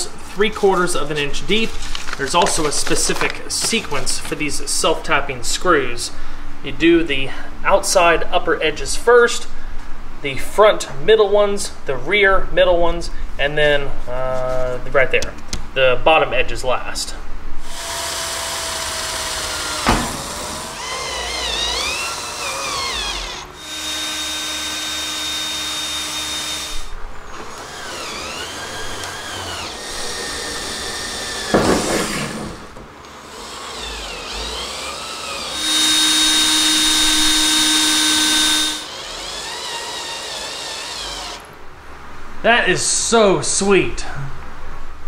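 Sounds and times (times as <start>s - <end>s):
cordless drill whining: 17.6s - 31.7s, 33.2s - 41.5s.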